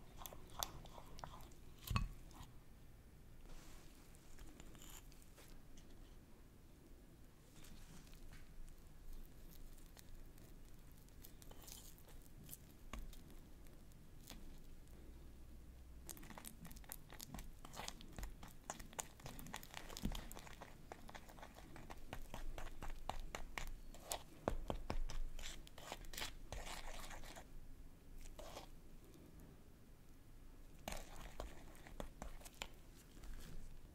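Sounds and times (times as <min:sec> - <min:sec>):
spatula stirring thick icing: 0:00.0 - 0:02.5, 0:04.4 - 0:05.2, 0:09.0 - 0:15.2, 0:16.0 - 0:27.5, 0:28.2 - 0:28.7, 0:30.8 - 0:33.7.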